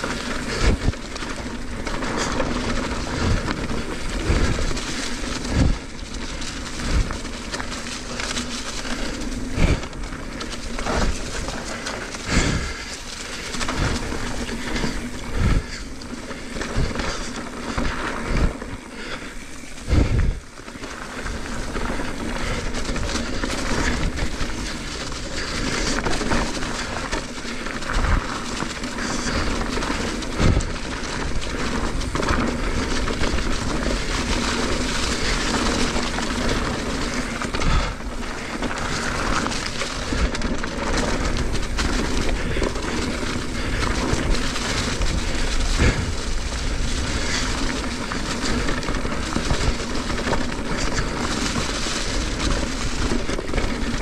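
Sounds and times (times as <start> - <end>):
tyres rolling over dirt: 0.0 - 54.0
wind on microphone: 19.8 - 20.4.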